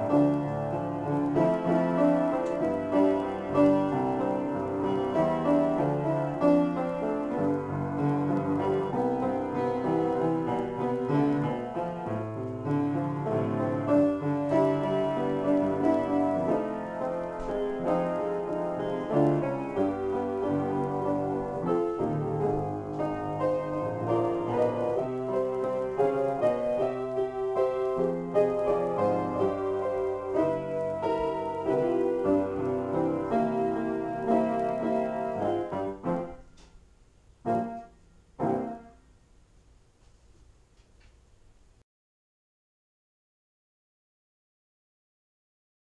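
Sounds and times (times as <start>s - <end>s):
solo piano: 0.0s - 39.6s.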